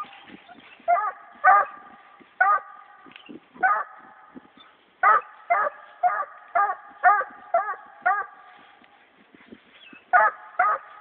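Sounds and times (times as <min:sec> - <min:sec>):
dog barking: 0:00.9 - 0:01.8, 0:02.4 - 0:02.8, 0:03.6 - 0:04.0, 0:05.0 - 0:08.4, 0:10.1 - 0:11.0.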